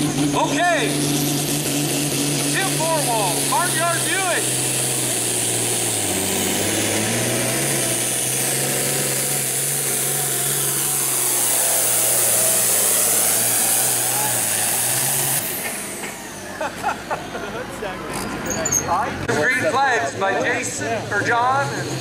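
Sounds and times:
tractor engine droning under load: 0:00.0 - 0:22.0.

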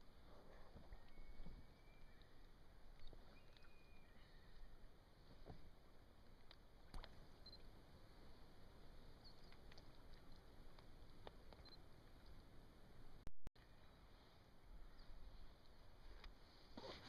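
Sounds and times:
faint clicks and ticks: 0:09.2 - 0:12.4.

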